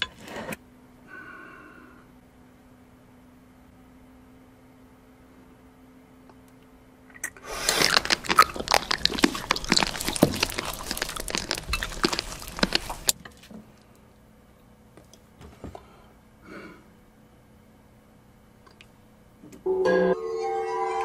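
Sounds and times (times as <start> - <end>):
crunching crisp food: 7.2 - 13.5.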